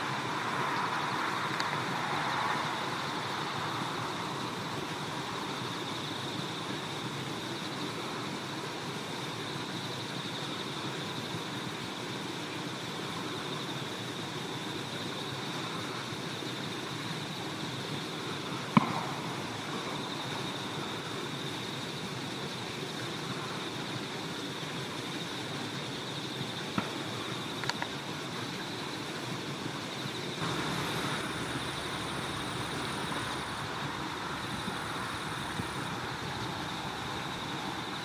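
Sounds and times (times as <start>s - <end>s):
rushing noise: 0.0s - 6.2s, 30.0s - 38.0s
outdoor background noise: 0.0s - 38.0s.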